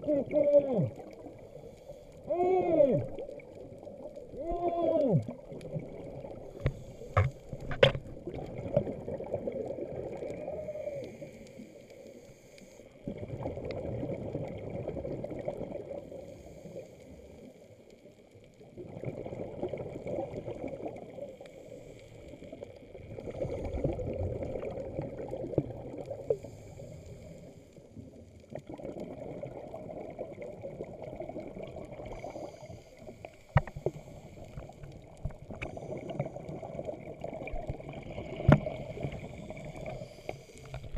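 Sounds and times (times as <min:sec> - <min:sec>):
diver exhaling bubbles underwater: 0:02.4 - 0:11.1, 0:13.0 - 0:16.0, 0:23.0 - 0:26.4, 0:28.5 - 0:32.4
regulator inhalation hiss: 0:39.2 - 0:40.8.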